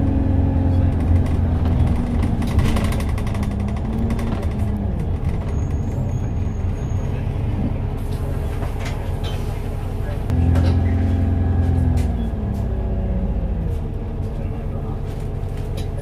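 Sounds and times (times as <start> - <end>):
bus diesel engine drone: 0.0 - 16.0
road noise: 0.0 - 16.0.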